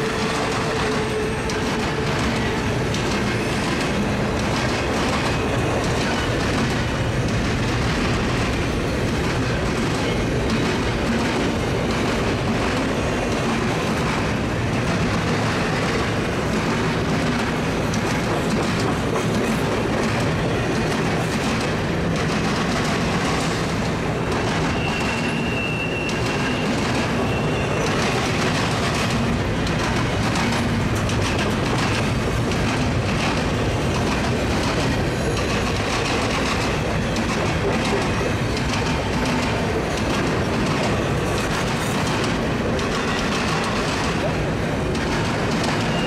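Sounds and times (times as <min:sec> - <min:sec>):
rail joints clicking and clacking: 0:00.0 - 0:46.0
train wheels rumbling on rails: 0:00.0 - 0:46.0
high wheel squeal: 0:24.5 - 0:28.2, 0:45.8 - 0:46.0.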